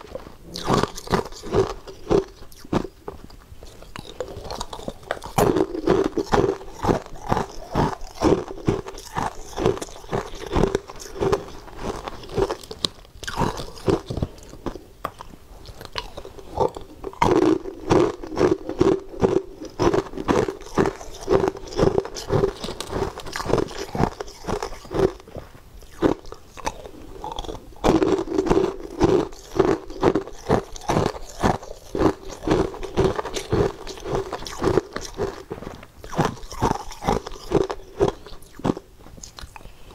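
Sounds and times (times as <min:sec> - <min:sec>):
ice crunching being chewed: 0:00.0 - 0:39.9.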